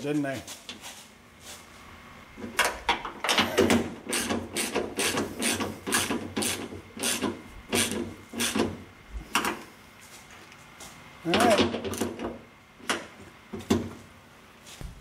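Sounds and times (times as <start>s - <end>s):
hand ratchet clicking: 4.1s - 8.7s.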